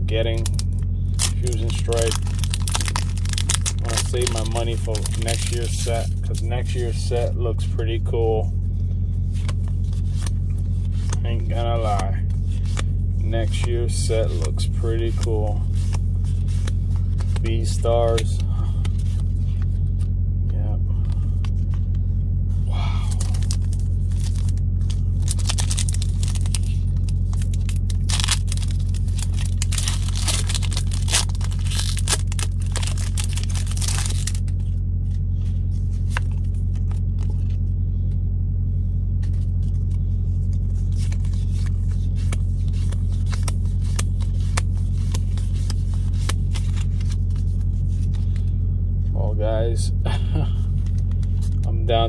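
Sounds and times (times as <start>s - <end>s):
low engine rumble: 0.0s - 52.0s
foil wrappers crinkling: 0.2s - 7.3s, 9.3s - 20.0s, 22.8s - 34.8s, 39.1s - 48.5s
cards sliding against each other: 12.3s - 20.1s, 39.2s - 48.6s.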